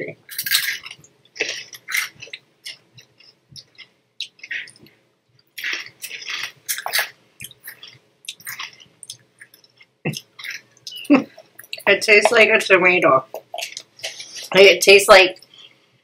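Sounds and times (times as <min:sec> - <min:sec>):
person chewing crunchy snacks: 0:00.3 - 0:04.9, 0:05.5 - 0:11.9.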